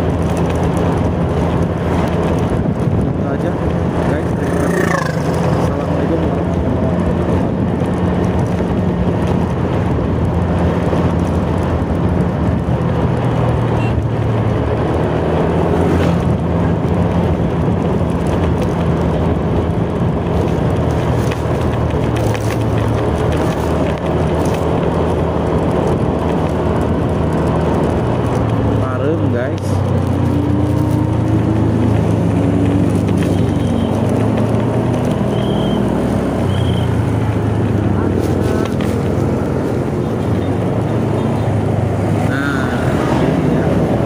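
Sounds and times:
motorcycle engine running: 0.0s - 44.0s
wind and road noise: 0.0s - 44.0s.

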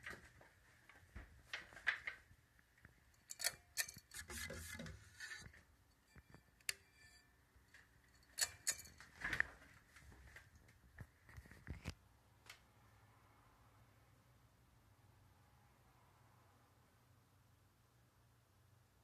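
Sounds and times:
sharp clicks and knocks: 2.8s - 9.6s.

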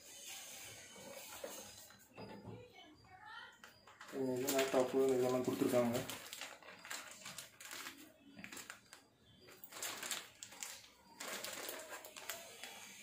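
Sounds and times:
plastic and foam packing rustling: 3.7s - 13.0s.

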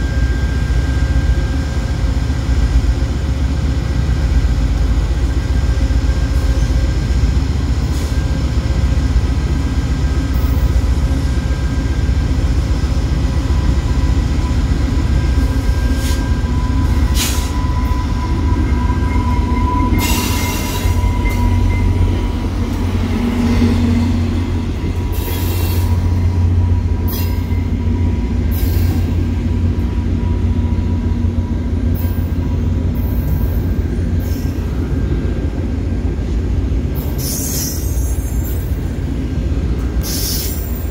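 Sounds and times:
diesel locomotive rumble: 0.0s - 40.9s.

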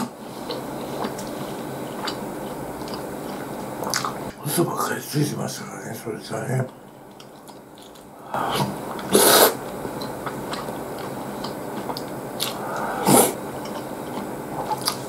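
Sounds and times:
person chewing: 0.0s - 4.3s, 6.7s - 15.0s
loud slurps: 8.4s - 9.6s, 12.4s - 13.8s.

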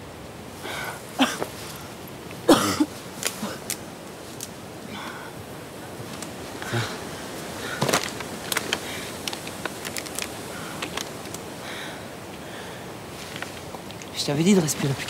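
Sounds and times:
woman breathing hard: 0.6s - 1.0s, 11.6s - 12.9s
handling clicks and rustles: 6.0s - 11.5s, 13.2s - 15.0s.

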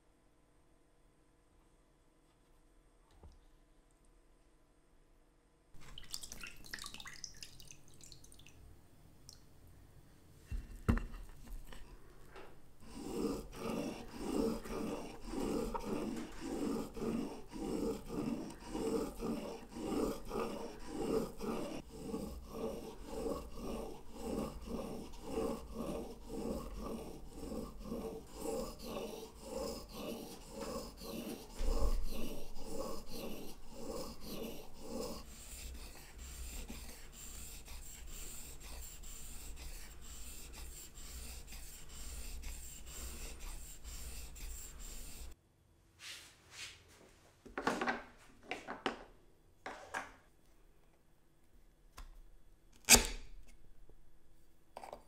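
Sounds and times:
chisel scraping on whetstone: 12.8s - 45.4s.

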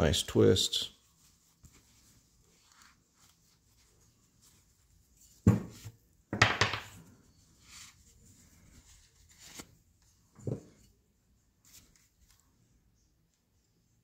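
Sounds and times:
cloth rustling: 1.0s - 6.2s, 7.0s - 12.7s.

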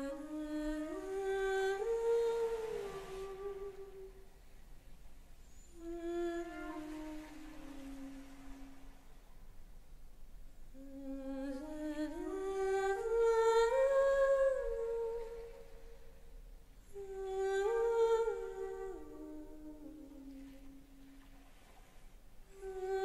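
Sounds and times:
person humming melody: 0.0s - 4.2s, 5.6s - 8.4s, 16.9s - 20.4s.

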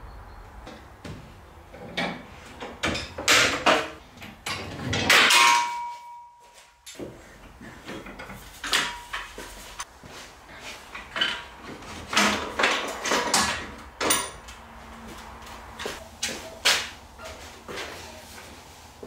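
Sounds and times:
metal ringing tone: 5.3s - 6.9s
metal clamps clanking: 11.0s - 14.6s.

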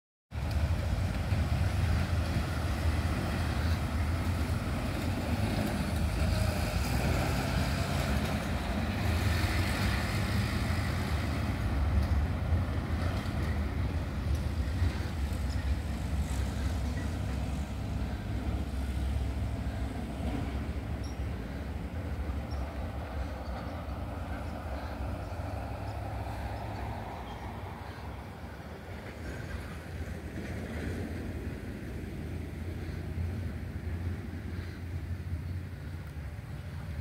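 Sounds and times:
light road traffic: 0.3s - 37.0s
pickup truck passing: 0.4s - 37.0s
motorcycle passing: 1.6s - 12.3s
steady low rumble: 8.2s - 37.0s.

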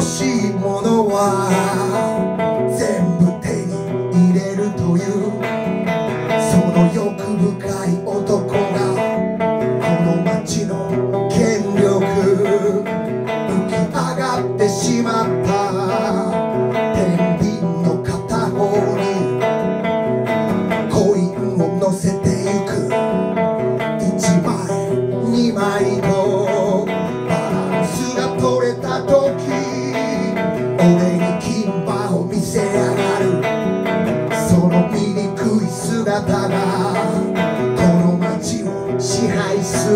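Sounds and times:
man singing: 0.0s - 39.9s
strummed electric guitar: 0.0s - 39.9s.

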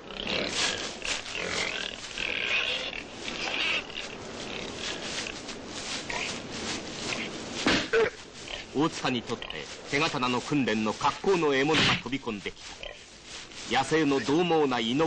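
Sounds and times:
pig squealing and grunting: 0.0s - 5.4s.

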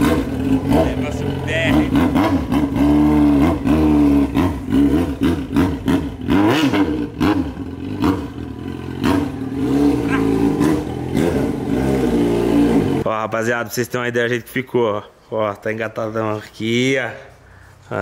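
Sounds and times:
motorcycle engine revving: 0.0s - 13.1s.

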